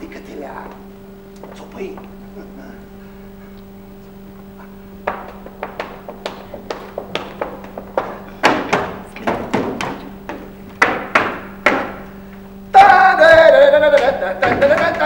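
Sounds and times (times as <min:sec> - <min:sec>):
feet stamping on wooden stage: 0:04.7 - 0:15.0.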